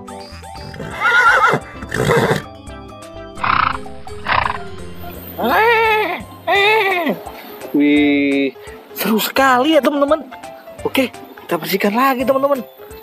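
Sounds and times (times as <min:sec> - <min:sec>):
background music: 0:00.0 - 0:13.0
horses neighing: 0:00.3 - 0:02.5.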